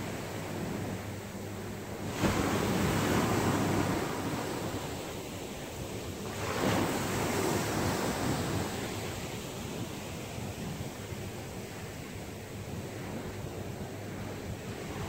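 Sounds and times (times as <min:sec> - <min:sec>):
waves breaking: 0:00.0 - 0:15.0.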